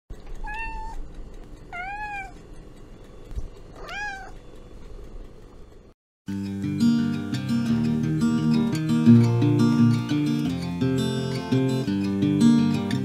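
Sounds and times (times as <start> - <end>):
cat meowing: 0.4 - 1.0, 1.7 - 2.4, 3.8 - 4.4
acoustic guitar music: 6.3 - 13.0.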